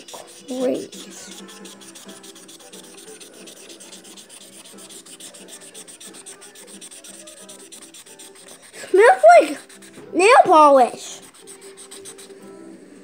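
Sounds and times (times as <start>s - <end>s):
marker scribbling on paper: 0.0s - 12.5s.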